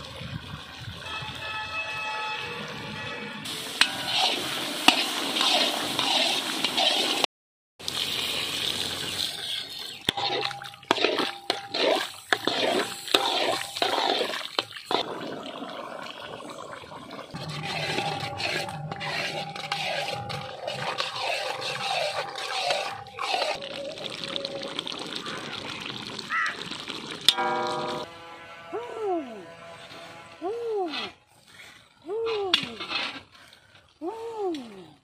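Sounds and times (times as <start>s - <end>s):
liquid pouring: 3.5s - 7.2s, 7.8s - 28.0s
meat sizzling in a wok: 3.5s - 7.2s
scrapes and knocks of stirring: 10.1s - 15.1s, 17.4s - 23.6s
wavering mid-pitched tone: 17.4s - 24.0s, 27.3s - 29.4s.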